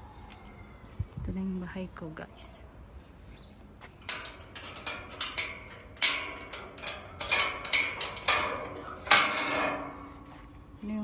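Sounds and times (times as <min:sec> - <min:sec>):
metallic clinks at metal gate: 0:04.0 - 0:10.7.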